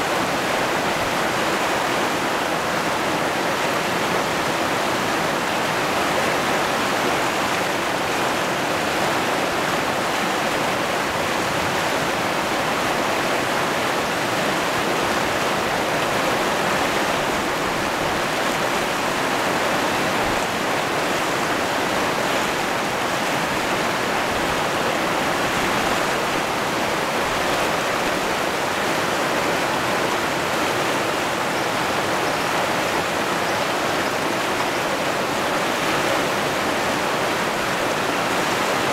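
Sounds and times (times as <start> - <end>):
water rushing over rocks: 0.0 - 38.9.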